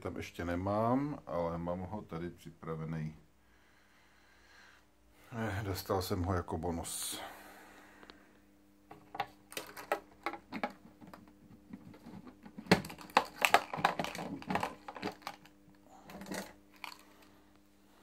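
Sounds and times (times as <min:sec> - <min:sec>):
plastic lid clicks and knocks: 0:08.9 - 0:15.4.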